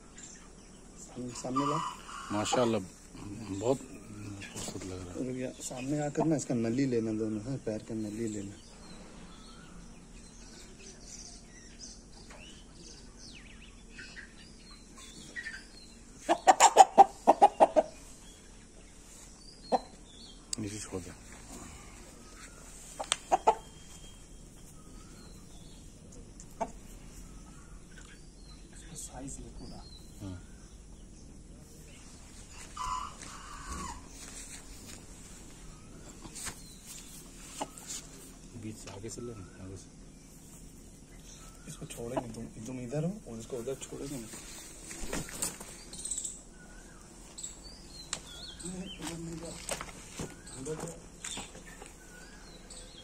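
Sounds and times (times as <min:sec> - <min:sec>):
small birds chirping: 0:00.0 - 0:53.0
chicken calling: 0:01.2 - 0:02.9, 0:14.9 - 0:18.1, 0:21.4 - 0:25.5, 0:32.5 - 0:35.0
chicken clucking: 0:16.2 - 0:18.0, 0:22.8 - 0:24.0
rustling of bird being handled: 0:32.0 - 0:38.5, 0:43.7 - 0:46.2, 0:47.1 - 0:52.7.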